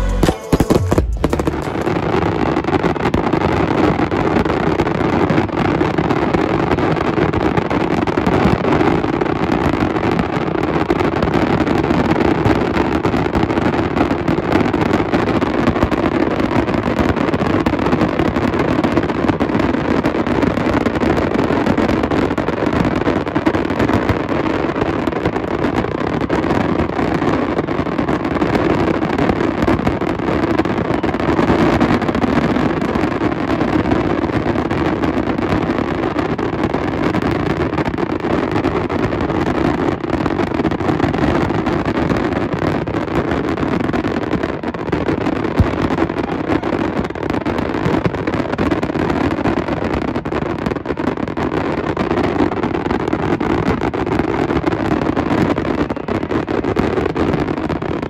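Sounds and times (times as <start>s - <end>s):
fireworks bangs and crackle: 0.0s - 58.0s.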